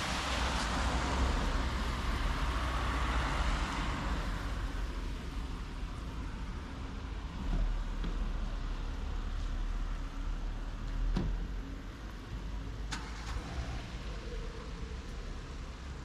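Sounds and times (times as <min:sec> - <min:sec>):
low traffic rumble: 0:00.0 - 0:16.0
car passing: 0:12.7 - 0:16.0.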